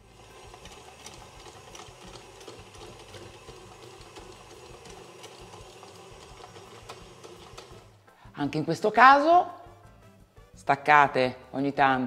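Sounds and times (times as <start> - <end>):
stand mixer motor hum: 0.0 - 8.0.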